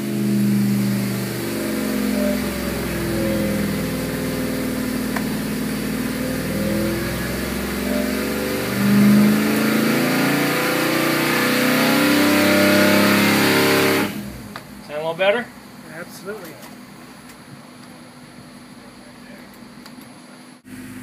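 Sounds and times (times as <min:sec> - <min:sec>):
car engine revving under load: 0:00.0 - 0:14.9.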